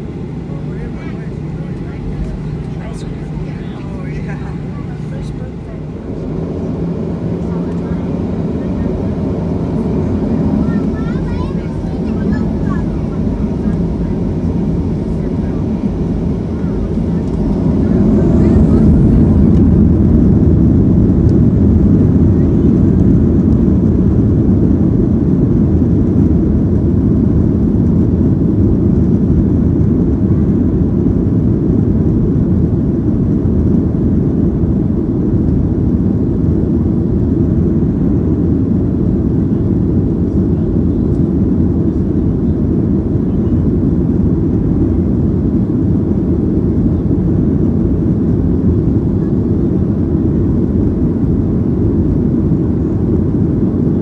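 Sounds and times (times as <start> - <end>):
aircraft cabin low rumble: 0.0 - 54.0.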